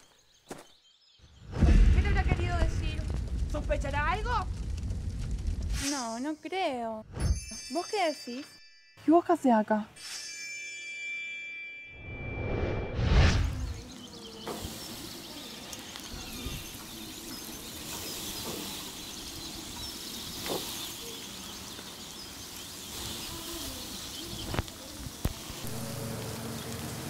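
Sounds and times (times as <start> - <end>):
birds chirping: 0.0 - 4.5, 13.4 - 27.0.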